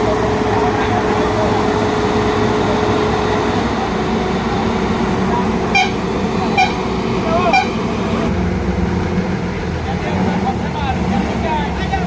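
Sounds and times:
diesel truck engines running: 0:00.0 - 0:12.0
short sharp honk blips: 0:05.7 - 0:06.8, 0:07.4 - 0:07.8.

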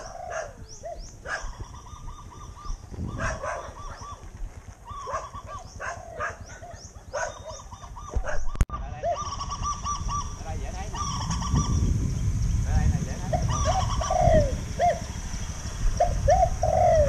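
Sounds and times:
dog barking: 0:00.0 - 0:00.6, 0:01.2 - 0:01.6, 0:03.2 - 0:04.1, 0:05.0 - 0:08.6
birds calling: 0:00.0 - 0:17.0.

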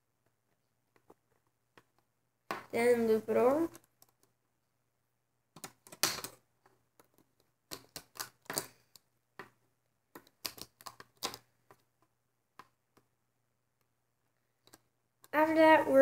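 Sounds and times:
plastic clicks and taps: 0:14.6 - 0:15.3.

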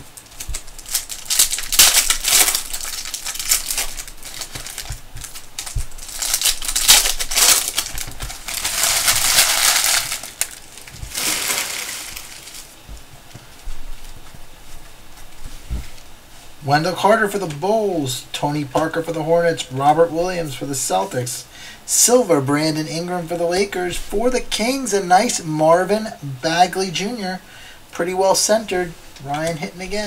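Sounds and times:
foil wrappers crinkling: 0:00.0 - 0:16.1
quiet handling: 0:00.0 - 0:21.3.

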